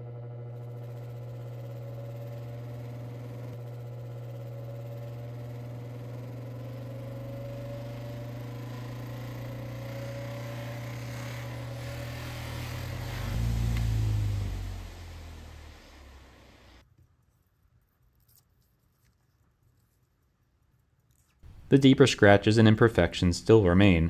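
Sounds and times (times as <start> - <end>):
polishing motor humming: 0.0 - 16.8.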